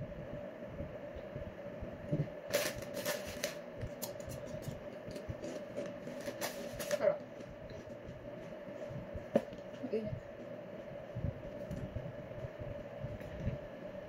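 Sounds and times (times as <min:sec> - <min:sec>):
steady hum: 0:00.0 - 0:14.0
crisp packet crackling: 0:02.5 - 0:05.2
crisps crunching: 0:02.5 - 0:07.1.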